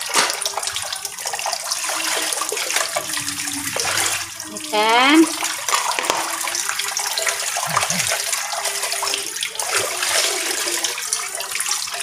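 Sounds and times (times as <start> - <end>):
tap water running and splashing: 0.0 - 12.0
pan scrubbing: 1.9 - 6.4.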